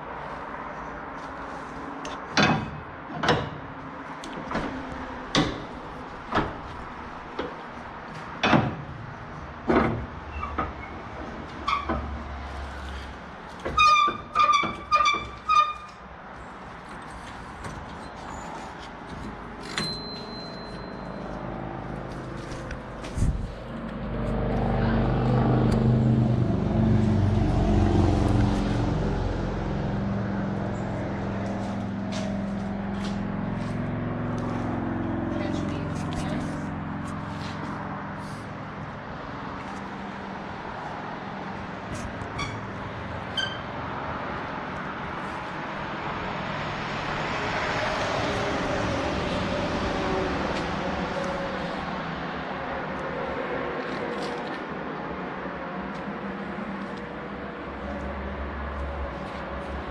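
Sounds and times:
metal knocks and clanks: 2.2s - 3.8s
ringing metallic clangs: 19.6s - 21.3s
low engine-like rumble: 20.6s - 43.6s.

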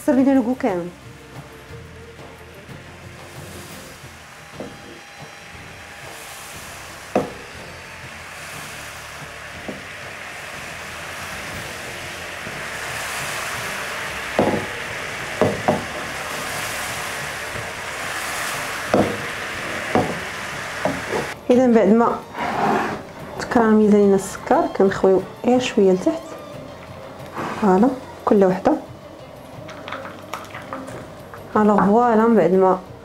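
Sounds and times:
syrup bubbling in a frying pan: 6.1s - 21.4s.

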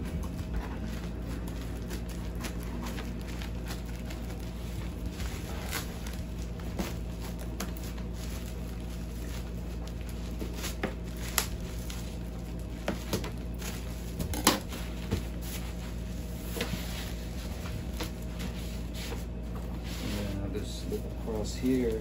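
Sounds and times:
plastic crinkling: 0.0s - 20.3s
steady low hum: 0.0s - 22.0s
scissors cutting plastic wrap: 0.7s - 14.8s.

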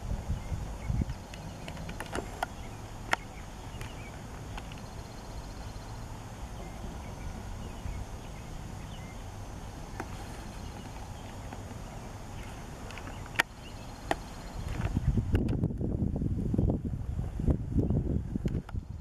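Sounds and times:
steady low rumble: 0.0s - 19.0s
faint bird chirps: 0.3s - 15.3s
sharp clicks: 1.1s - 4.9s, 12.8s - 15.9s.

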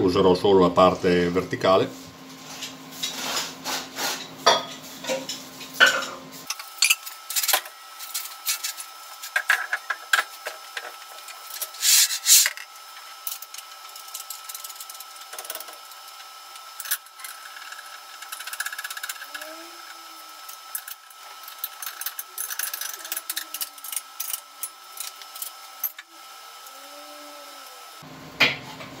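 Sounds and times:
metal scraping: 11.4s - 12.6s.

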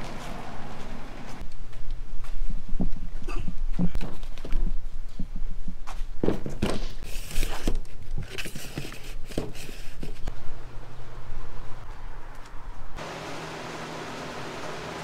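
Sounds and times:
footsteps: 0.0s - 7.6s.

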